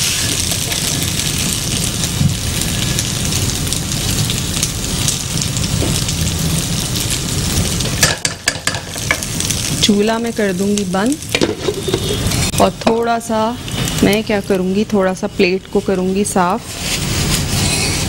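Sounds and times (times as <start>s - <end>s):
food sizzling in a pan: 0.0s - 18.0s
metal spatula scraping pan: 11.4s - 12.6s, 16.7s - 18.0s.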